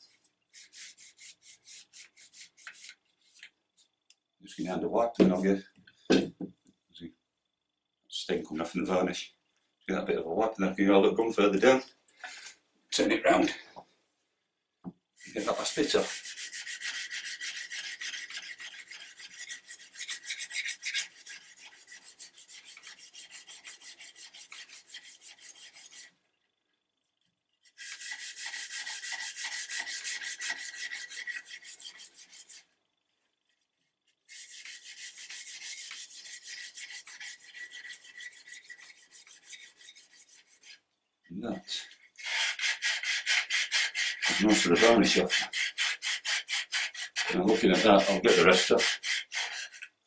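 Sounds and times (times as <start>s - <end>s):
pad scrubbing wood: 15.2s - 26.0s, 27.8s - 32.6s, 34.3s - 40.8s, 42.2s - 49.8s.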